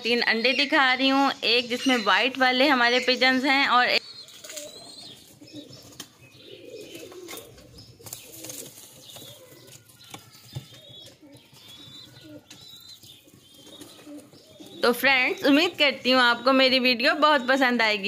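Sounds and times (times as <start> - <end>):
small birds chirping: 0.0 - 18.0
pigeons cooing: 1.7 - 17.9.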